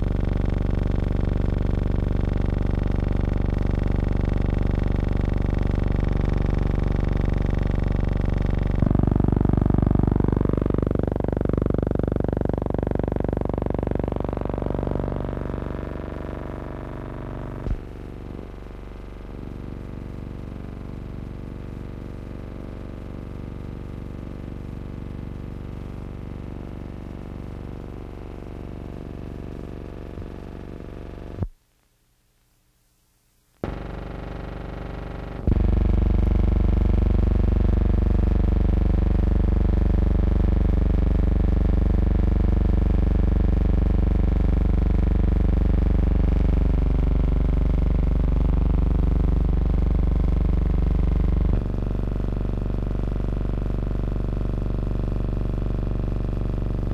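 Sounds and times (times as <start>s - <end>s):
electronic drone: 0.0s - 22.0s, 26.6s - 31.5s, 33.6s - 51.8s
wavering rising tone: 10.3s - 17.7s.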